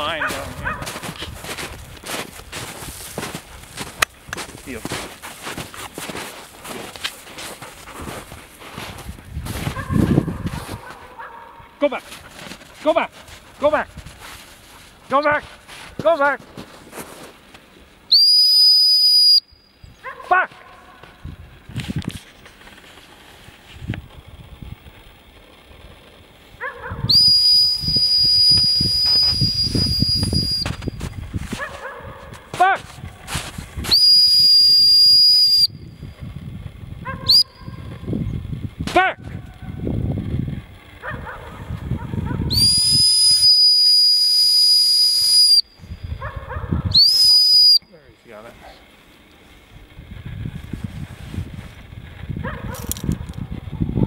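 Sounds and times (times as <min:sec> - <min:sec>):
distant dog barking: 0:00.0 - 0:01.2, 0:09.6 - 0:12.3, 0:20.0 - 0:21.2, 0:26.6 - 0:27.1, 0:31.5 - 0:32.9, 0:37.0 - 0:38.0, 0:41.0 - 0:42.5, 0:46.1 - 0:47.0, 0:52.4 - 0:54.0
whistle long blast: 0:18.1 - 0:19.9, 0:27.1 - 0:31.0, 0:33.8 - 0:36.0, 0:37.3 - 0:37.8, 0:42.5 - 0:46.1, 0:46.9 - 0:48.0.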